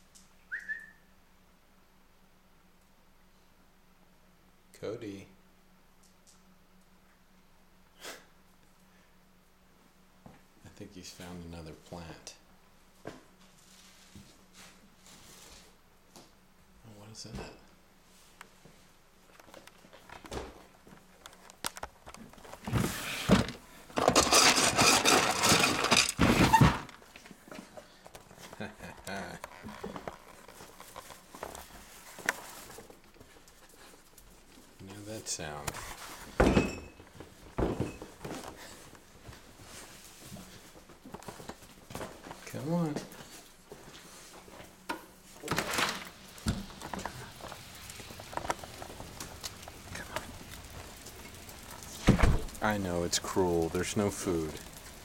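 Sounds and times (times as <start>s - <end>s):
rustling and scraping against microphone: 13.4s - 15.8s, 21.0s - 36.4s, 46.1s - 55.0s
door thump: 52.0s - 52.6s.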